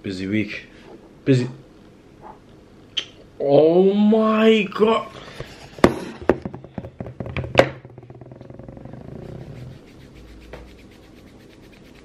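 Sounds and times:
low steady hum: 0.0 - 12.0
camera knocks and thuds: 5.8 - 8.6
tissue rubbing on fleece: 9.2 - 12.0.

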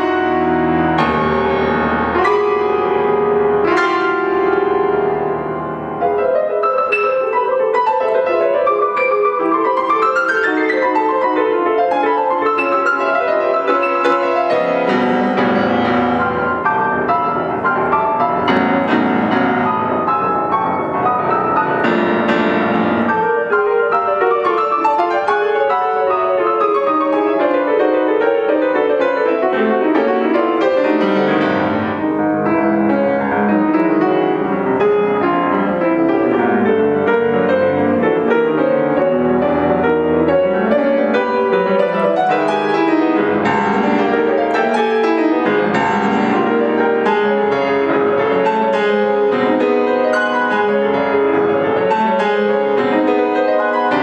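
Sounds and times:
grand piano playing: 0.0 - 54.0.

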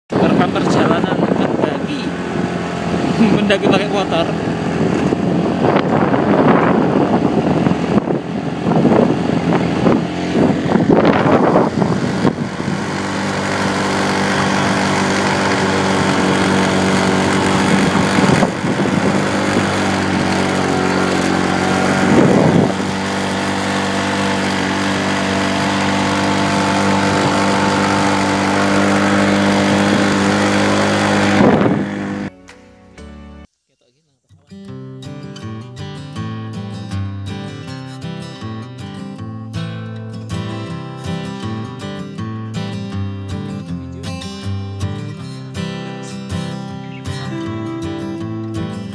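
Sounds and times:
motorcycle engine under load: 0.1 - 33.4.

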